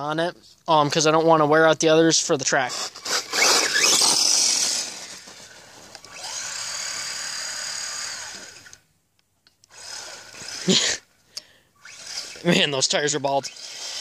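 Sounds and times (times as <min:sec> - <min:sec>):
electric motor whine: 0:02.7 - 0:08.8, 0:09.6 - 0:11.0, 0:11.8 - 0:12.6, 0:13.4 - 0:14.0
tires spinning on pavement: 0:02.9 - 0:08.6.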